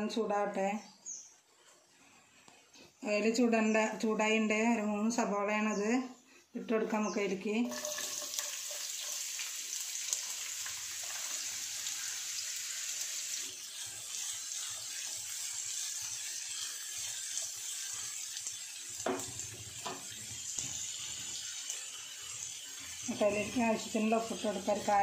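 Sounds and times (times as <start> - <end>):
wooden spatula scraping pan: 7.6 - 9.4
onions sizzling in hot oil: 7.6 - 25.0.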